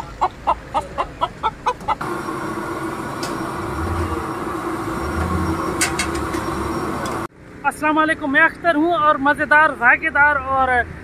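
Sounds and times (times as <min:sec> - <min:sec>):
chickens clucking: 0:00.0 - 0:07.3
steady hum with low drone: 0:02.0 - 0:07.3.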